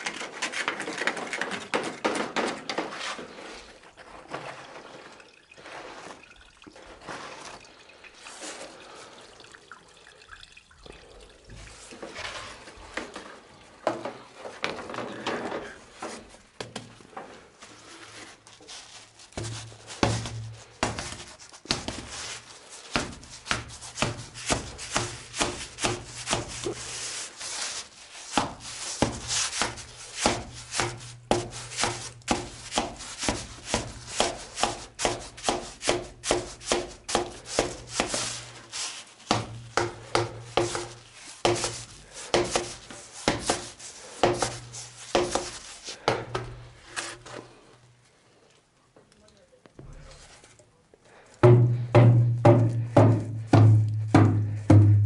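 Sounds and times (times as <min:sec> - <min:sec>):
water splashing in drain pipe: 0:00.0 - 0:15.1, 0:19.3 - 0:46.0.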